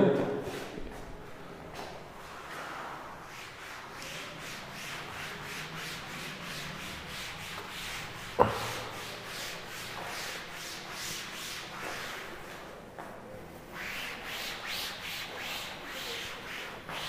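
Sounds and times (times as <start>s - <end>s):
duster rubbing blackboard: 2.3s - 12.6s, 13.7s - 17.0s.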